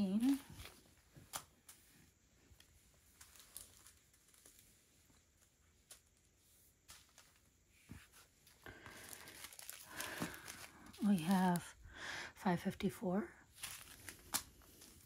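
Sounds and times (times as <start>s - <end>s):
plastic bags crinkling: 2.6s - 6.2s, 8.5s - 11.7s, 13.5s - 15.0s.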